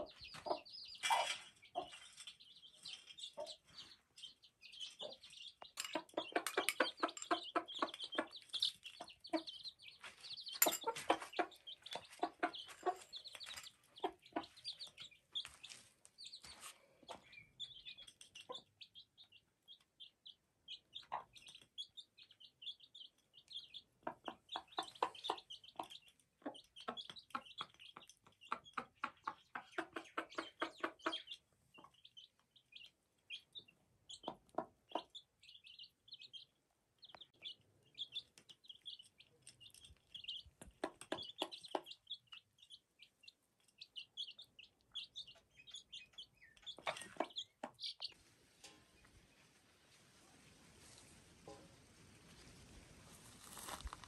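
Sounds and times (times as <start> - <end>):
hen clucking: 0.0 - 2.1, 3.2 - 3.9, 4.9 - 15.8, 23.6 - 33.4, 34.1 - 36.4, 40.2 - 42.4, 44.1 - 48.2
chicks peeping: 0.0 - 54.0.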